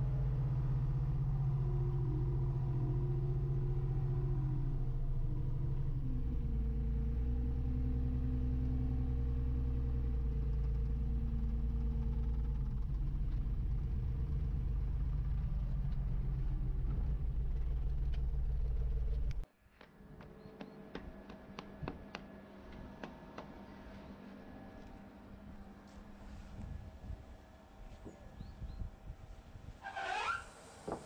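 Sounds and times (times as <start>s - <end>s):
loader engine running: 0.0s - 19.5s.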